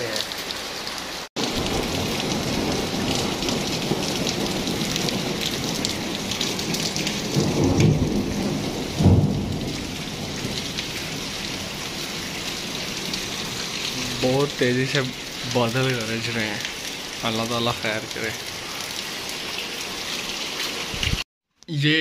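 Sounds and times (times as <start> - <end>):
heavy rain falling: 0.0 - 21.2
thunder rumbling: 1.4 - 16.7.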